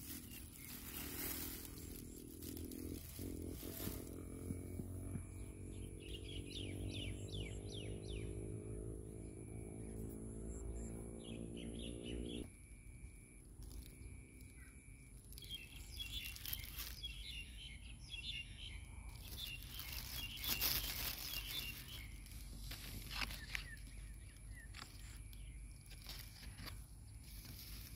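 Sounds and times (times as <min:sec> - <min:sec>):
plastic bags crinkling: 0:00.0 - 0:04.5, 0:15.2 - 0:17.3, 0:19.2 - 0:25.2
bird chirps: 0:00.0 - 0:12.5, 0:13.6 - 0:27.9
low mechanical hum: 0:00.0 - 0:27.9.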